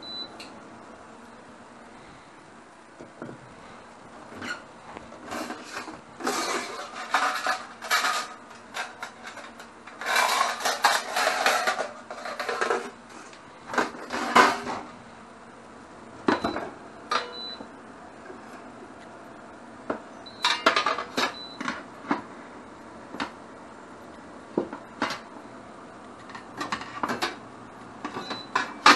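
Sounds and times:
metal trays clattering: 5.2s - 13.0s.

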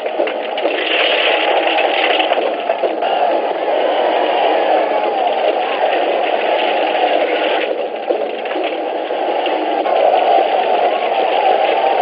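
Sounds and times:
crowd of men shouting: 2.9s - 7.8s, 9.0s - 12.0s.

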